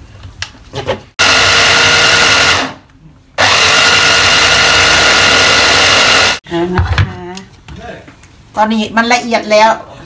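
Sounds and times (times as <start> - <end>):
stick blender whining: 1.2 - 2.8, 3.4 - 6.4.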